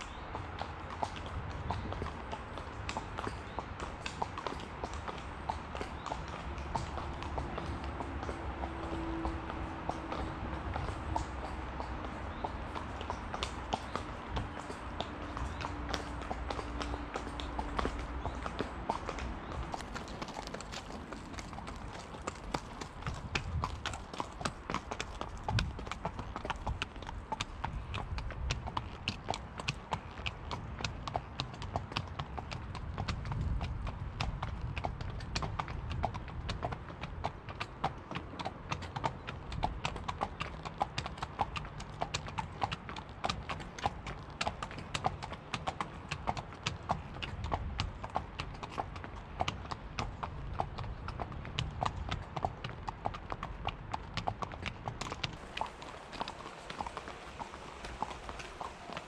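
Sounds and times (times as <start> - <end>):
horse hooves clip-clopping: 0.0 - 59.0.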